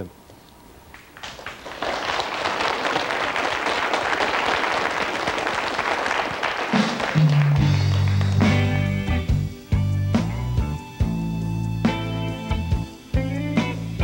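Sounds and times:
audience applauding: 0:00.9 - 0:09.2
band playing with bass: 0:06.7 - 0:14.0.

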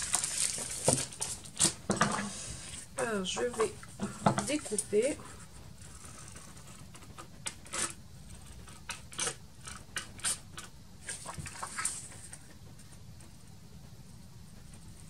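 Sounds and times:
paper rustling and tapping: 0:00.0 - 0:02.2.

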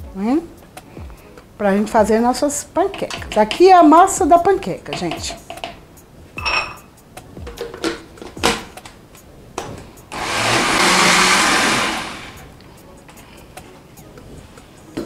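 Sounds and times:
blender running: 0:10.1 - 0:12.5.

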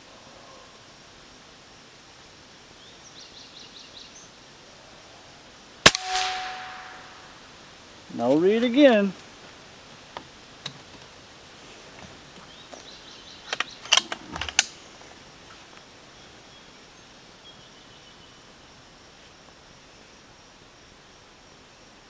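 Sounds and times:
distant birds: 0:00.0 - 0:18.9.

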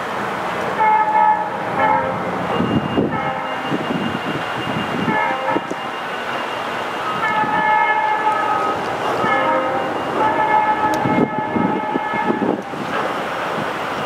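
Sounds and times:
locomotive air horn blasts: 0:00.8 - 0:05.9, 0:07.0 - 0:12.9.

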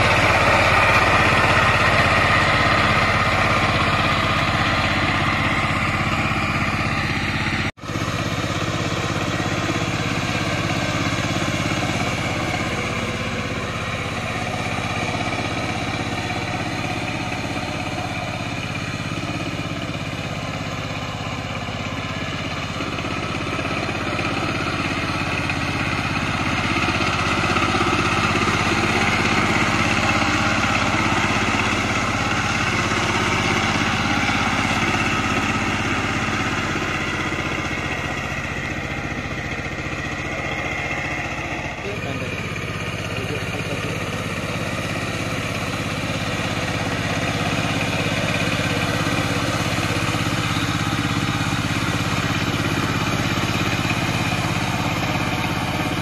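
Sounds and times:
diesel engine running: 0:00.0 - 0:56.0
tiller churning muddy soil: 0:00.0 - 0:56.0.

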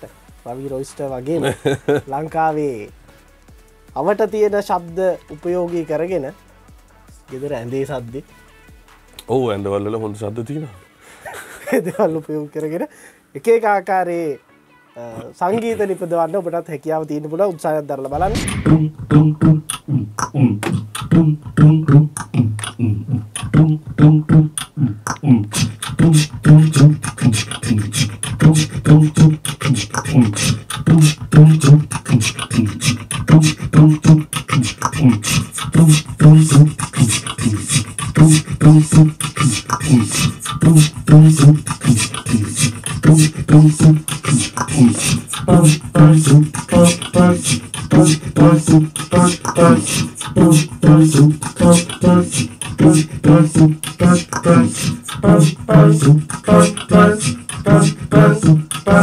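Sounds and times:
high pitched vocal line: 0:18.1 - 0:59.0
looped beatboxing beat: 0:18.1 - 0:59.0.

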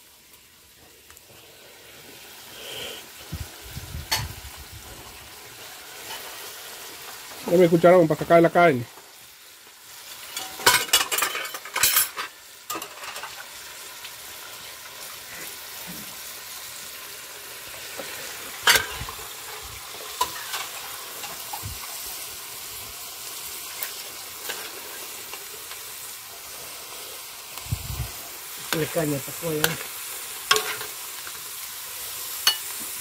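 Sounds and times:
stew simmering hiss: 0:00.0 - 0:33.0.

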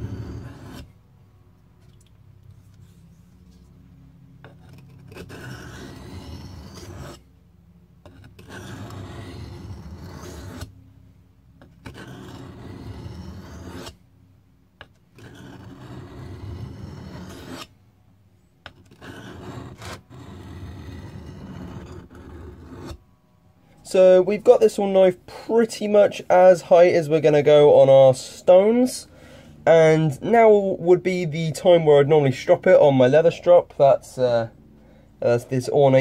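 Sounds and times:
knife scraping on whetstone: 0:00.0 - 0:00.9, 0:04.4 - 0:07.2, 0:08.0 - 0:10.7, 0:11.6 - 0:14.0, 0:14.8 - 0:17.7, 0:18.7 - 0:23.0.

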